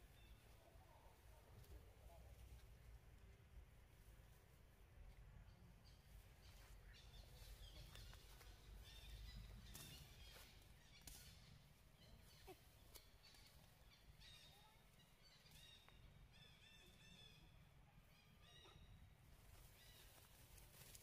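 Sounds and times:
soft rustling: 0:19.2 - 0:21.0.

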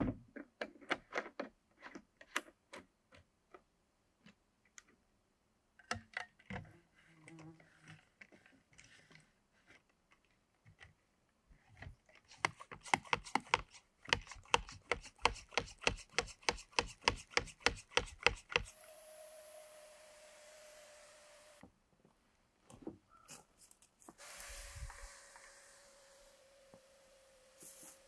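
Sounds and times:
sprayer plunger pumping: 0:12.3 - 0:21.6, 0:24.1 - 0:28.0
sprayer hissing with whistling tone: 0:18.6 - 0:21.6, 0:24.1 - 0:28.0.

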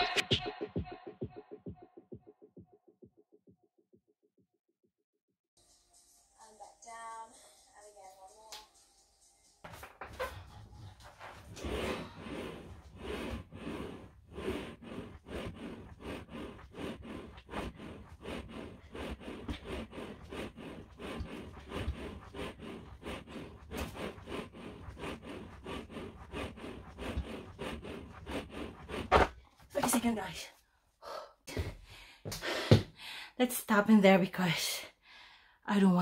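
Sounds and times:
exercise machine carriage scraping: 0:09.7 - 0:30.3.

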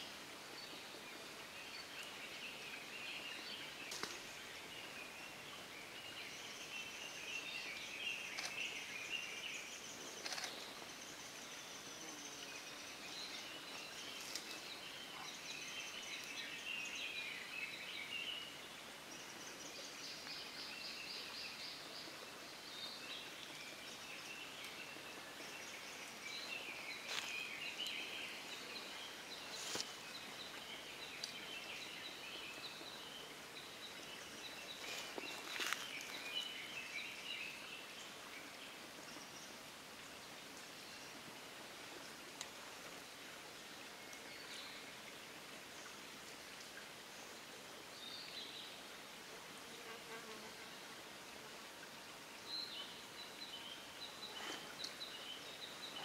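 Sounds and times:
songbirds chirping and trilling: 0:00.0 - 0:39.7, 0:52.3 - 0:56.0.

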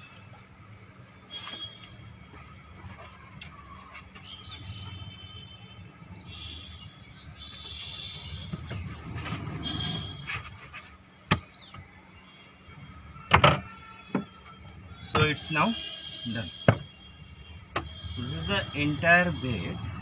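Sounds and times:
metal scraping and squeaking: 0:08.4 - 0:11.2.

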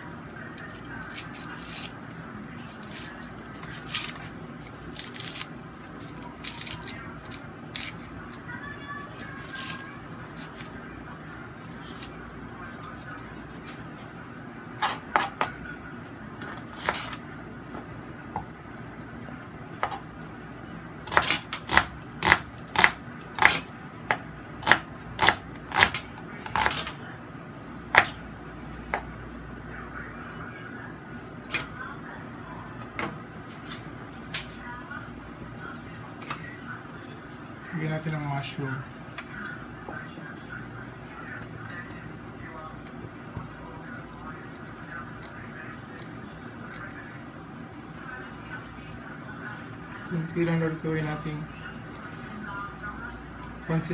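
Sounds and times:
knife chopping on plastic board: 0:21.1 - 0:26.0.

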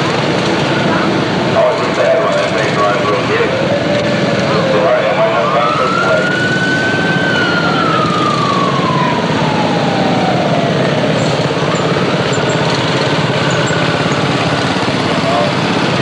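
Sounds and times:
steady background noise: 0:00.0 - 0:16.0
siren rising and winding down: 0:03.5 - 0:14.4.

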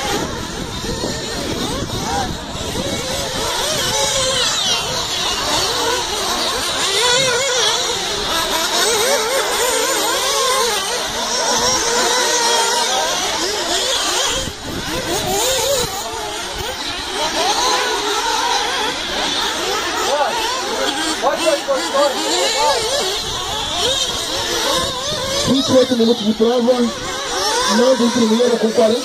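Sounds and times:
model car engines whining: 0:00.0 - 0:29.0.

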